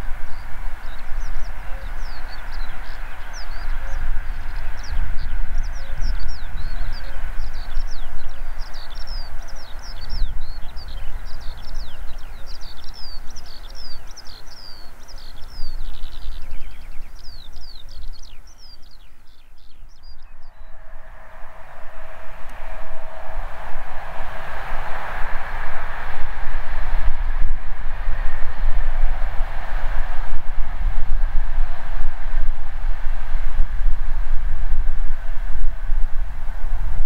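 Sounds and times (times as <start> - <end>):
birds chirping: 0.0 - 27.2
approaching train humming: 0.0 - 37.0
low rumble: 19.6 - 37.0.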